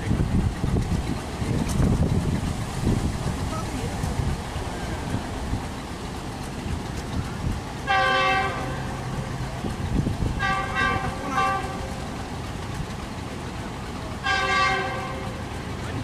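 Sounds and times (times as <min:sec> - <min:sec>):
low rumble: 0:00.0 - 0:16.0
locomotive horn blasts: 0:07.8 - 0:09.1, 0:10.4 - 0:12.1, 0:14.2 - 0:15.6.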